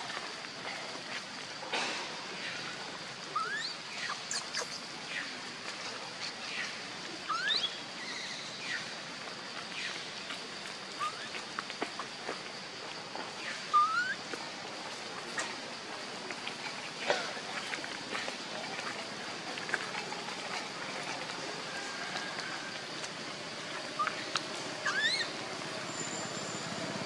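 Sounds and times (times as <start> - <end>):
high-pitched hiss: 0.0 - 27.0.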